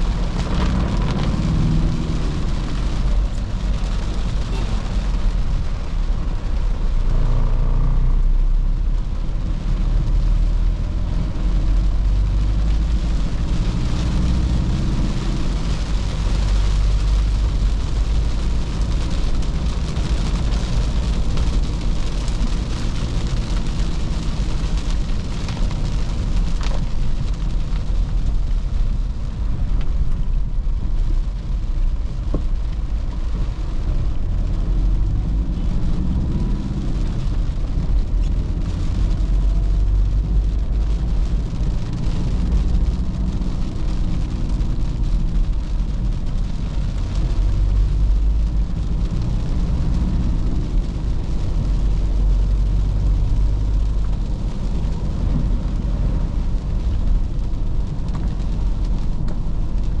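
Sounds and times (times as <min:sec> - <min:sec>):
diesel engine rumble: 0:00.0 - 1:00.0
tyre hiss on wet road: 0:33.4 - 1:00.0.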